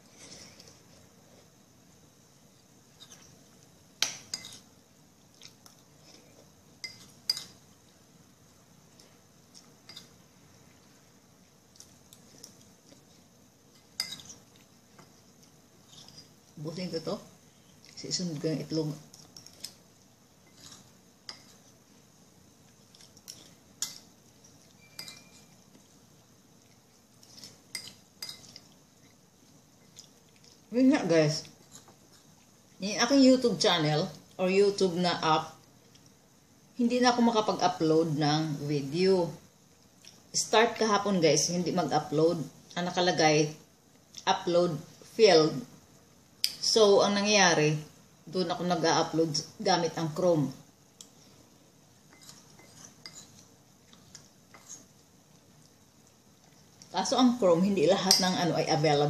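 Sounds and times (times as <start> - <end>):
cutlery clinking against a dish: 6.8 - 7.6, 13.8 - 14.4, 24.8 - 25.6, 27.7 - 28.7, 52.1 - 53.4
cutlery clinking against dish: 14.0 - 14.4, 24.8 - 25.5.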